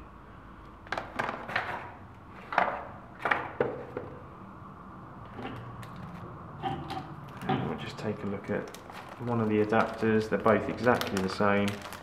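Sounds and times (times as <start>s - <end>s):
cables rustling in cardboard box: 7.3s - 12.0s.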